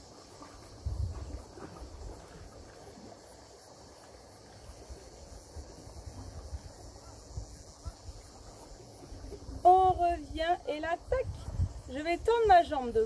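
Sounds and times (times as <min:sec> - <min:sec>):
wind on microphone: 0:00.0 - 0:03.2, 0:04.6 - 0:13.0
high-pitched hiss: 0:00.0 - 0:13.0.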